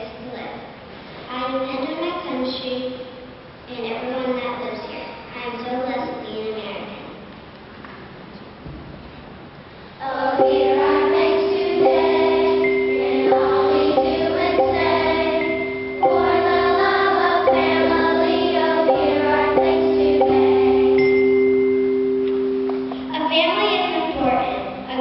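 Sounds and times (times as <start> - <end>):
children singing: 10.0 - 21.4
electric keyboard held notes: 10.1 - 24.0
wooden mallet instruments: 10.1 - 24.3.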